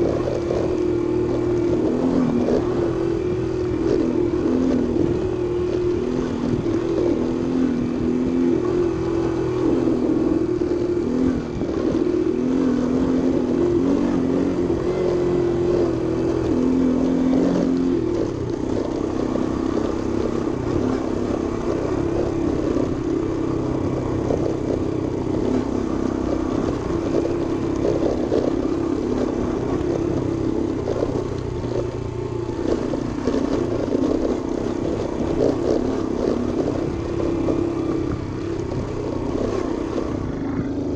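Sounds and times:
scooter engine running: 0:00.0 - 0:40.9.

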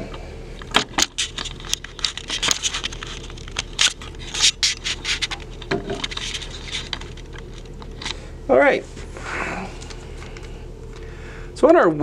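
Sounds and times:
irregular scraping and rustling: 0:01.0 - 0:08.2.

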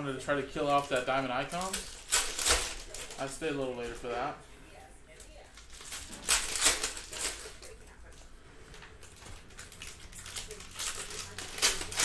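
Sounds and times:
plastic wrappers torn and crinkled: 0:00.6 - 0:04.0, 0:05.2 - 0:07.8, 0:09.0 - 0:12.0.

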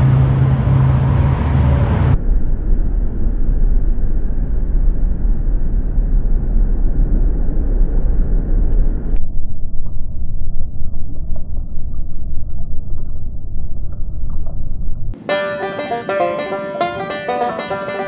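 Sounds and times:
water and wind rumble: 0:00.0 - 0:15.2.

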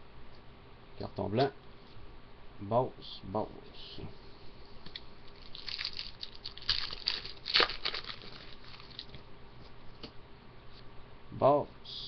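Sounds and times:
cards rustling and crinkling: 0:05.3 - 0:09.2.

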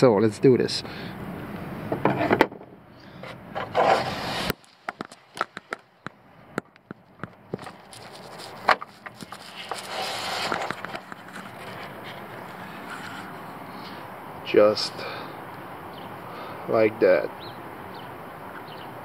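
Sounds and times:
hand scraping on plastic: 0:03.2 - 0:05.6, 0:07.5 - 0:13.6.

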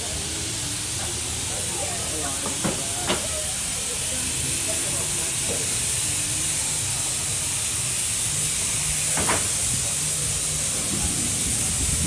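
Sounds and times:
outdoor hiss: 0:00.0 - 0:12.0
wind rumble on microphone: 0:09.7 - 0:12.0.

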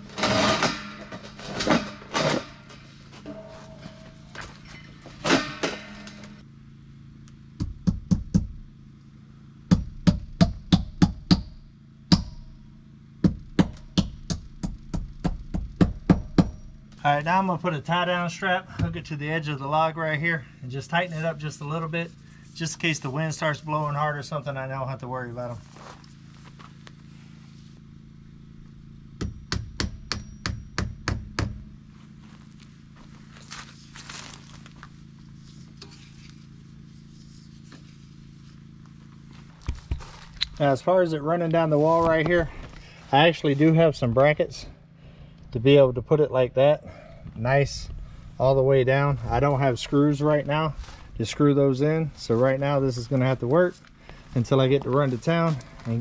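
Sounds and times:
hammer blows with metallic ring: 0:01.8 - 0:06.4, 0:13.5 - 0:17.0, 0:29.2 - 0:31.7.

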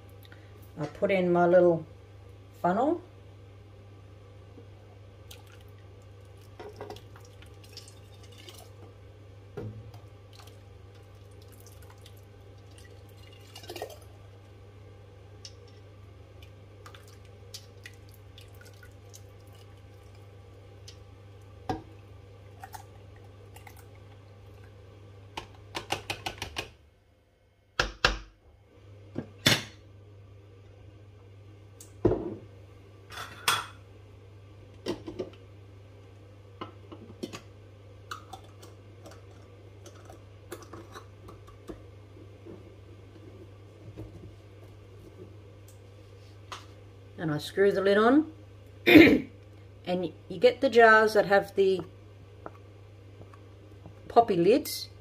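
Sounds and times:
wet pouring: 0:05.3 - 0:08.8, 0:10.3 - 0:14.2, 0:16.8 - 0:21.0, 0:22.5 - 0:24.8.

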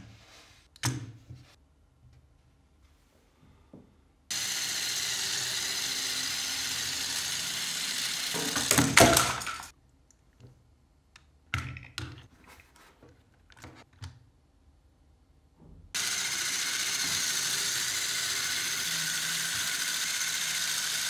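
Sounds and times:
toy car motors whirring: 0:04.3 - 0:09.7, 0:16.0 - 0:21.0.

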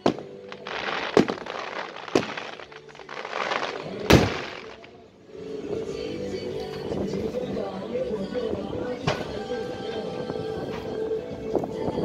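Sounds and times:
firework bangs: 0:00.0 - 0:05.0
firework crackle: 0:00.0 - 0:05.0.

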